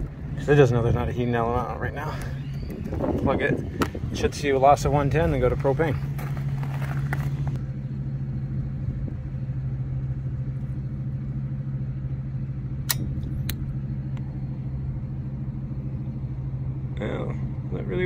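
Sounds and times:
machine humming with rumble: 0.0 - 18.0
noisy clatter: 2.1 - 7.7.

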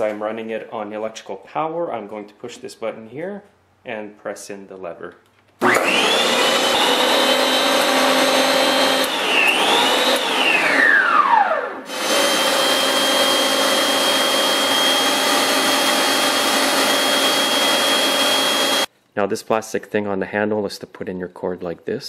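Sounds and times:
snowblower motor whining: 5.6 - 18.9.

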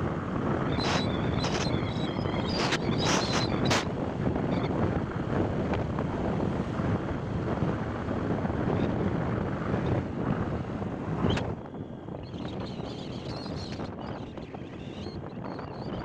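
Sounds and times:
wind buffeting microphone: 0.0 - 16.0
tyres and engine drone: 0.2 - 12.0.

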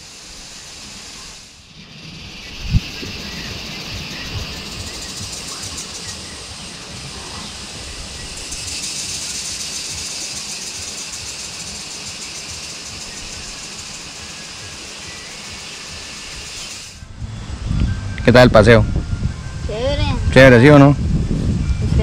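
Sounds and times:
high-pitched hiss: 0.0 - 22.0
low unsteady rumble: 17.0 - 22.0.

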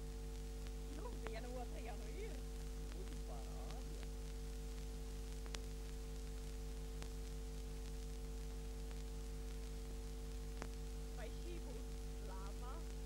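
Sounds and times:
film hiss: 0.0 - 13.0
steady hum: 0.0 - 13.0
faint clicks: 10.5 - 10.8.

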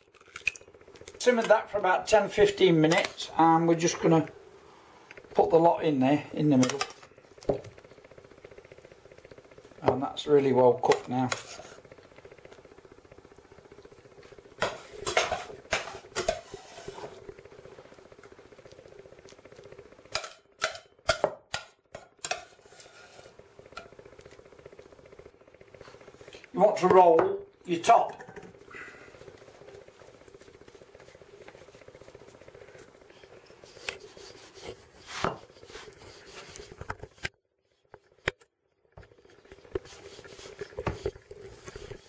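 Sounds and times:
steady low hum: 0.0 - 42.0
rolling pin scraping on board: 14.6 - 17.3, 22.2 - 23.4, 33.5 - 37.2, 39.6 - 42.0.

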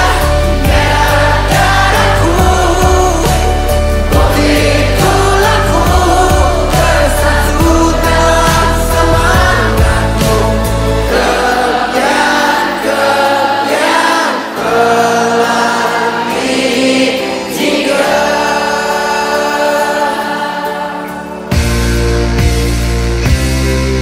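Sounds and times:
deep bass: 0.0 - 11.3, 21.6 - 24.0
choir singing held notes: 0.0 - 22.0.

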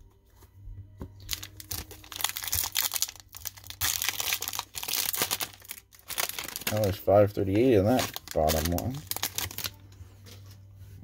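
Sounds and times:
foil wrapper tearing and crinkling: 1.3 - 9.8.

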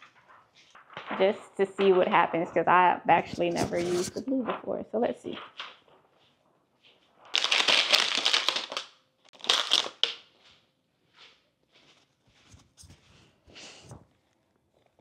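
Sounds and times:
plastic gel sheet crinkling: 0.0 - 4.3, 7.0 - 10.5.

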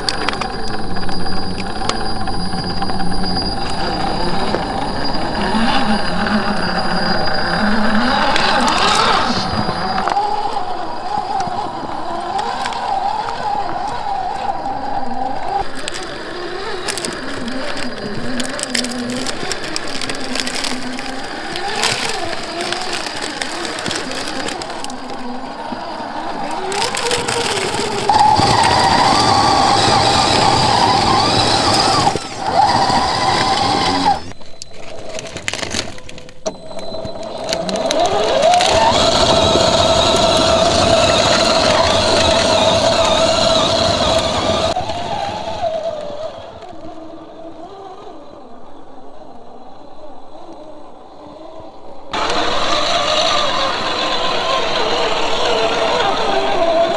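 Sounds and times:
electric motor whining: 0.0 - 34.4, 35.3 - 56.9
tyres crunching over rock: 15.5 - 44.7.

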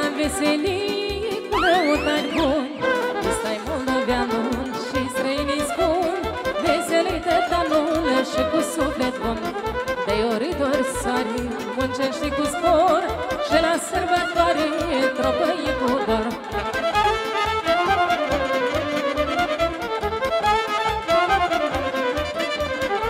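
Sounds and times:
woman singing into microphone: 0.0 - 16.6
violin melody: 0.0 - 23.0
backing track with bass beat: 16.6 - 23.0.

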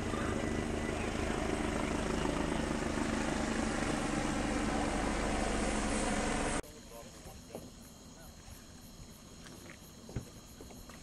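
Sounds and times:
steady engine drone: 0.0 - 7.4.

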